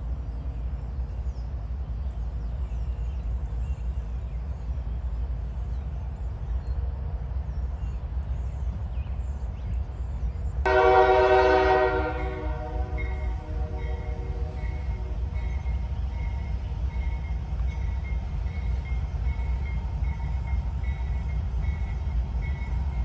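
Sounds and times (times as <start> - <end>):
locomotive air horn: 10.7 - 15.3.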